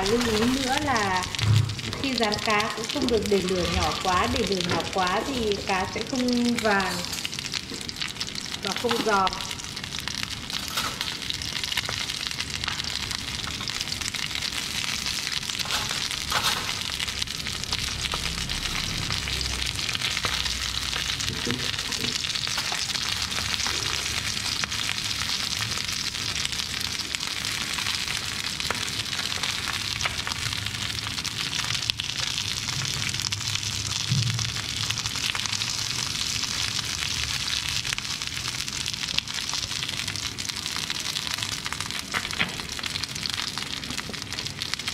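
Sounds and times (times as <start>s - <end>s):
fish sizzling in hot oil: 0.0s - 44.9s.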